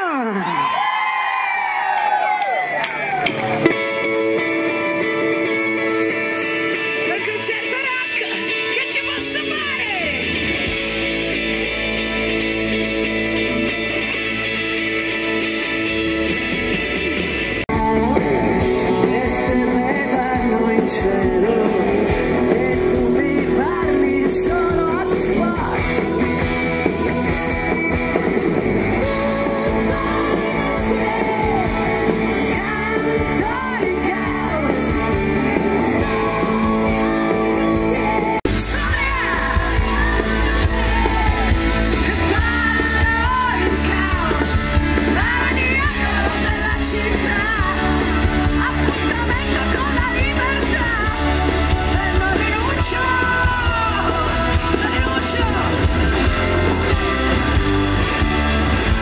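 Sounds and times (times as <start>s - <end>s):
rock band playing: 0.0s - 59.0s
woman singing into a microphone: 37.9s - 51.2s.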